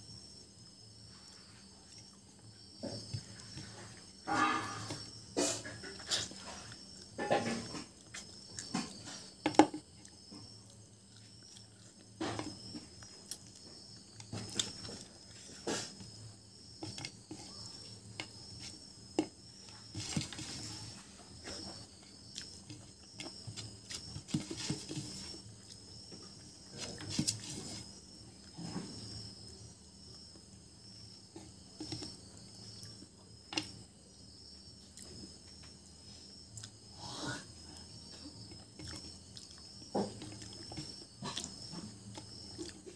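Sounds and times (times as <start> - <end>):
crickets chirping: 0.0 - 42.9
chewing and mouth sounds: 36.5 - 36.8, 38.5 - 42.9.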